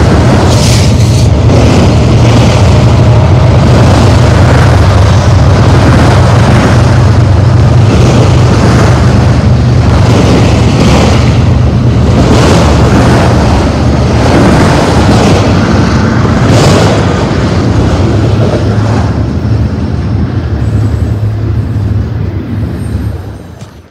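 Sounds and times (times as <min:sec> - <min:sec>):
freight train wheels rumbling on rail: 0:00.0 - 0:23.9.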